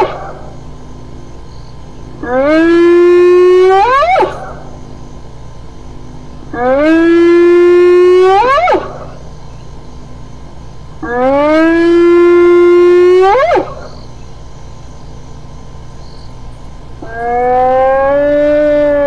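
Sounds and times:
hyena whooping: 0:17.0 - 0:19.0.

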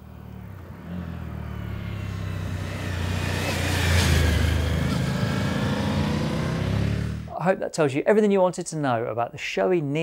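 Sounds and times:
motorcycle passing by: 0:00.0 - 0:07.3.

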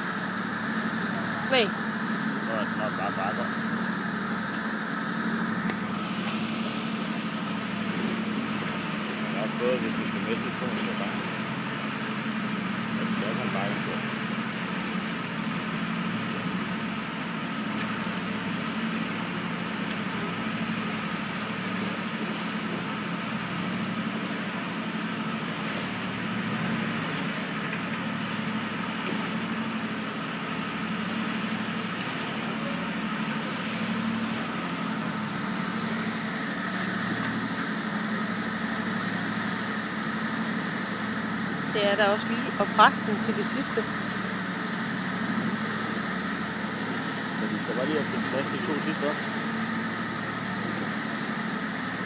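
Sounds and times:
ferry engines droning: 0:00.0 - 0:52.0
high machinery whine: 0:00.0 - 0:52.0.

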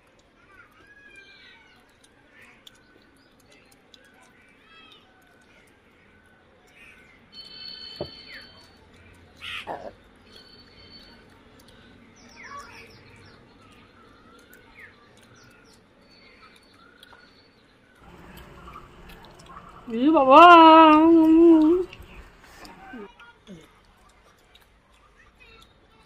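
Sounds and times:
birds chirping: 0:06.0 - 0:23.0.

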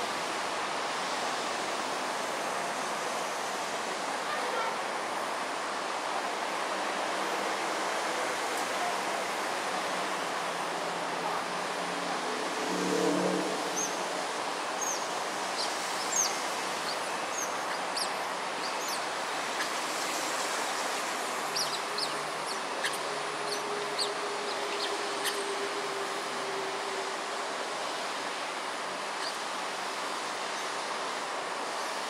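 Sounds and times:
steady background hiss: 0:00.0 - 0:32.0
otters chirping: 0:15.6 - 0:19.8, 0:20.6 - 0:25.4.

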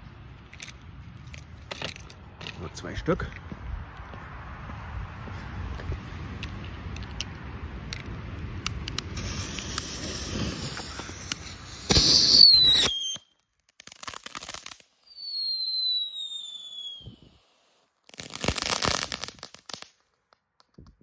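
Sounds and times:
firework fountain spraying: 0:08.5 - 0:13.2, 0:13.8 - 0:19.9
fuse hissing: 0:09.0 - 0:12.9
firework whistle falling: 0:09.2 - 0:13.3, 0:15.1 - 0:17.4.

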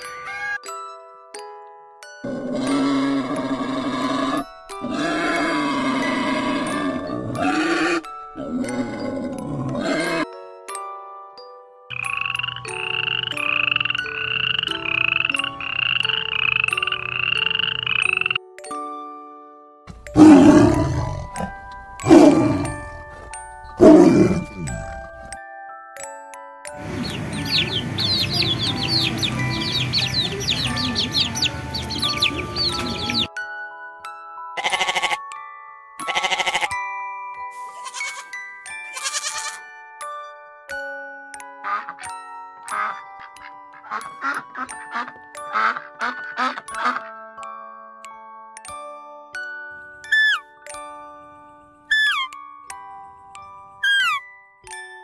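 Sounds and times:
gentle chiming music: 0:00.0 - 0:55.0
rattling croaking calls: 0:11.9 - 0:18.4, 0:26.8 - 0:33.3, 0:51.9 - 0:52.4, 0:53.8 - 0:54.2
slow chiming melody: 0:18.4 - 0:34.6
goat bleating: 0:34.6 - 0:35.2, 0:36.1 - 0:36.7, 0:37.8 - 0:38.3, 0:38.9 - 0:39.6.

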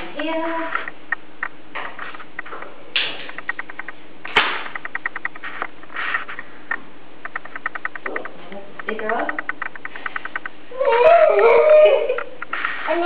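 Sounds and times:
sharp click: 0:00.7 - 0:11.2
gas igniter ticking: 0:02.2 - 0:10.8.

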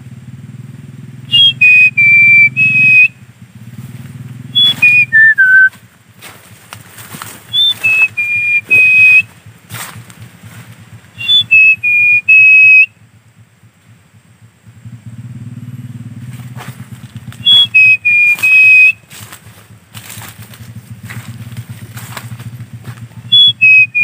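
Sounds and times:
man whistling bird call: 0:01.3 - 0:03.2, 0:04.6 - 0:05.7, 0:07.5 - 0:09.3, 0:11.2 - 0:12.9, 0:17.4 - 0:19.0, 0:23.3 - 0:24.0.

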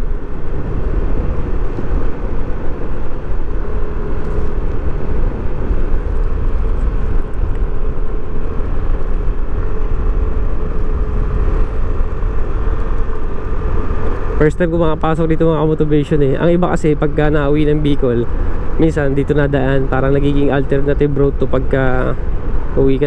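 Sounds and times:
scooter engine hum: 0:00.0 - 0:23.0
wind and road noise: 0:00.0 - 0:23.0.

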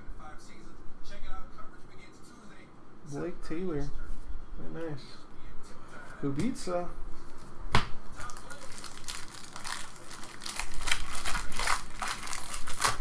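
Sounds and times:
foil wrapper crinkling: 0:08.2 - 0:13.0.

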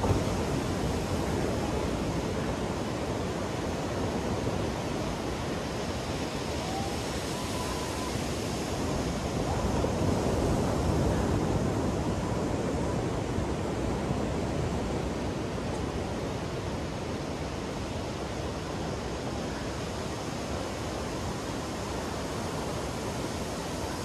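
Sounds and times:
ocean waves breaking on sand: 0:00.0 - 0:24.0.

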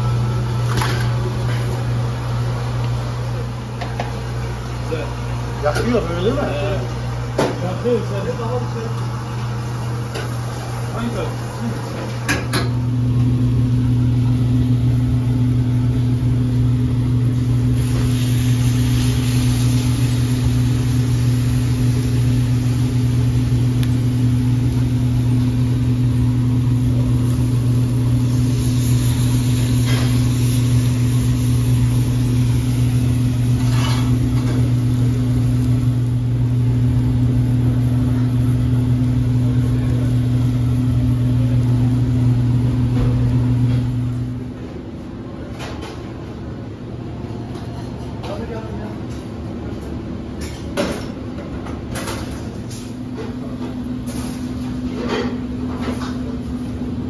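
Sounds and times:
loud machine hum: 0:00.0 - 0:45.4.

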